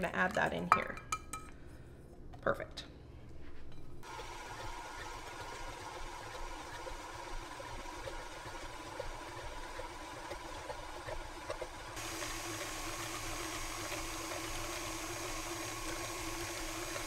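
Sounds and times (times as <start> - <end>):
electric mixer running: 4.0 - 17.0.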